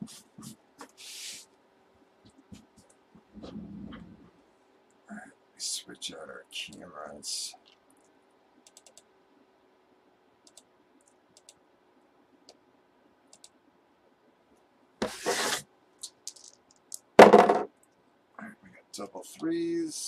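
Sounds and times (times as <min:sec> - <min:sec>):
faint clicks: 0:07.5 - 0:09.1, 0:10.4 - 0:11.6, 0:13.3 - 0:13.6
dice clattering on a table: 0:16.0 - 0:17.7.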